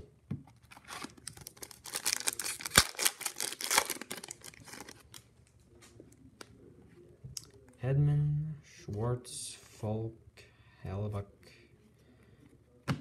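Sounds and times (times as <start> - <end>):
foil wrapper crinkling: 0.7 - 5.1.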